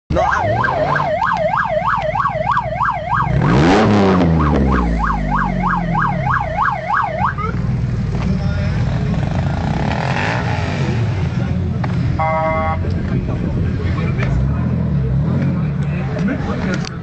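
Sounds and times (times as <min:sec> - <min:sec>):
siren wailing: 0:00.1 - 0:07.6
car engine idling and revving: 0:00.1 - 0:17.0.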